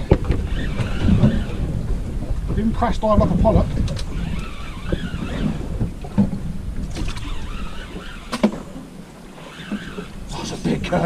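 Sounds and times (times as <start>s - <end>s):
sea noise: 0.0s - 11.0s
wind: 0.0s - 11.0s.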